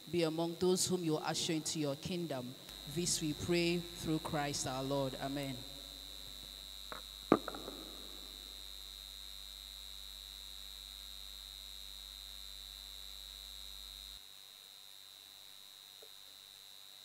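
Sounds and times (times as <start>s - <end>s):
high thin whine: 0.0s - 8.6s
electrical hum: 0.0s - 14.2s
sharp knock: 6.9s - 8.1s.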